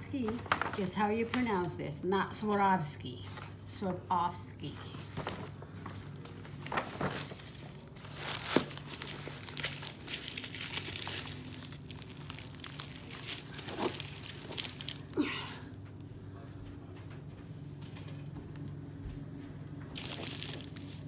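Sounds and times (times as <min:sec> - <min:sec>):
tissue paper and gift bag crinkling: 0:05.0 - 0:15.8, 0:19.9 - 0:21.0.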